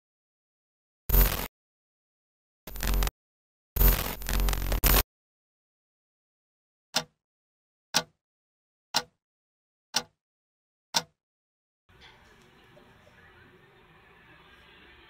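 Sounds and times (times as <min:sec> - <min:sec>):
clock ticking: 0:07.0 - 0:07.2, 0:08.0 - 0:08.2, 0:09.0 - 0:09.2, 0:10.0 - 0:10.2, 0:11.0 - 0:11.2.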